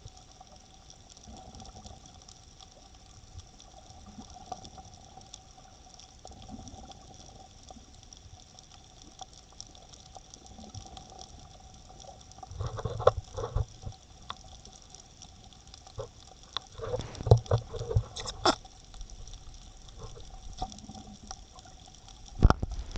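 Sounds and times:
muffled water sloshing: 15.9s - 22.9s
thumps and splashes: 16.7s - 18.6s, 22.4s - 22.9s.

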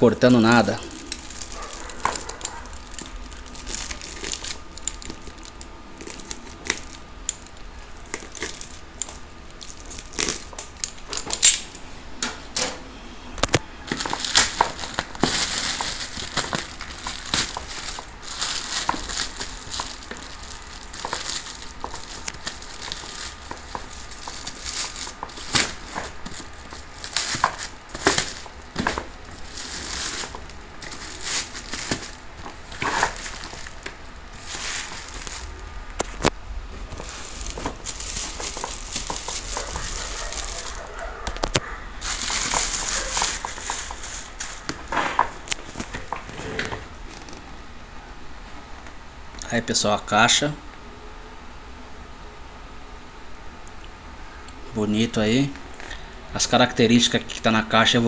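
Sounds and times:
plastic wrapping crinkling and tearing: 0.0s - 11.8s, 13.4s - 47.5s.

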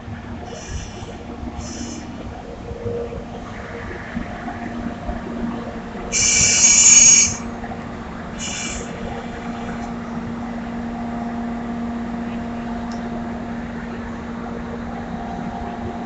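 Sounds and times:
low locomotive hum: 0.0s - 16.0s
locomotive air whistle blasts: 6.1s - 7.5s, 8.4s - 8.9s.

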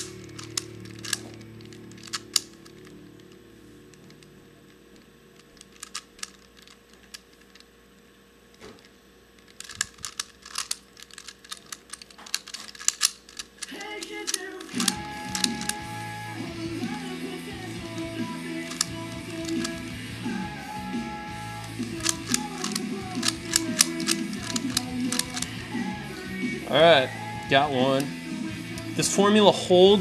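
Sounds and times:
guitar-like music: 0.0s - 5.0s, 13.6s - 30.0s
plastic puzzle clicking: 0.0s - 7.7s, 8.8s - 15.8s, 17.8s - 19.9s, 21.6s - 25.6s.

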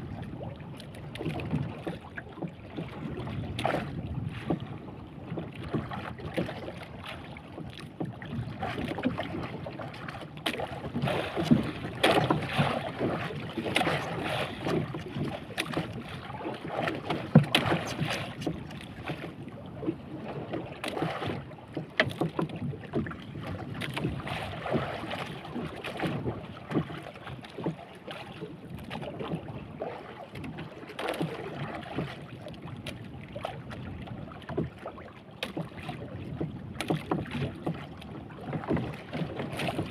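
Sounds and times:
water slapping against boat hull: 0.0s - 39.9s.

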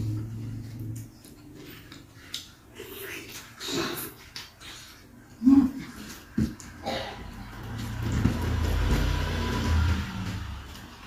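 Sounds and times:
low engine rumble: 0.0s - 2.0s, 6.9s - 11.0s.

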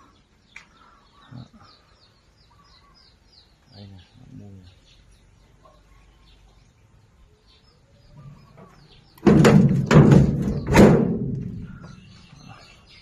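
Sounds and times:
faint birds chirping: 0.0s - 13.0s
sharp metallic knocks and rattles: 8.6s - 12.0s.

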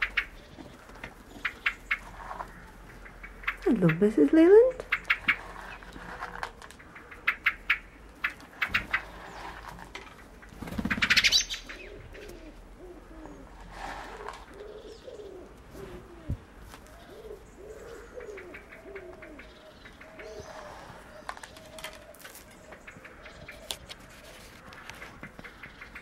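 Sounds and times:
wings fluttering: 0.0s - 17.4s
pheasants calling softly: 0.0s - 26.0s.

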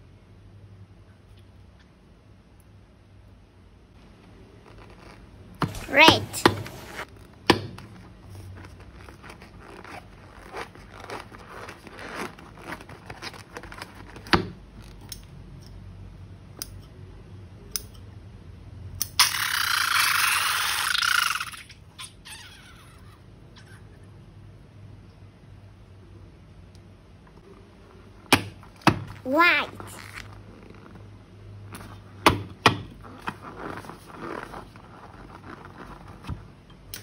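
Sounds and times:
small clicks and crinkles: 3.9s - 5.8s, 6.8s - 15.8s, 33.0s - 37.0s.

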